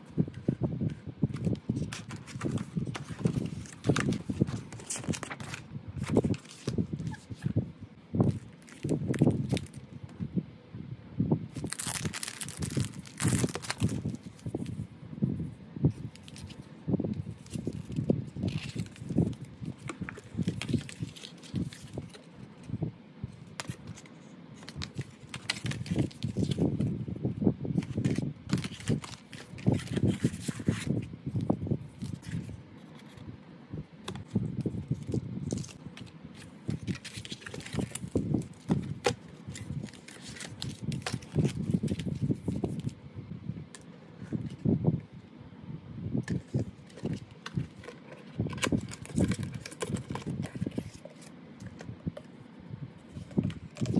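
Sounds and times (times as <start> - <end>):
plastic wrapping crinkling: 11.6 - 14.7, 36.4 - 42.9, 46.3 - 51.3.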